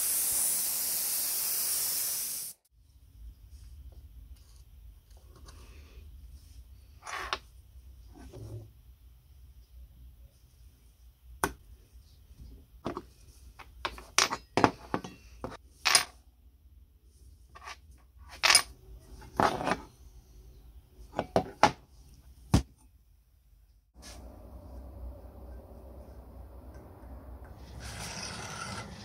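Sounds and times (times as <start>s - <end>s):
metal parts clinking and scraping: 17.6s - 19.8s.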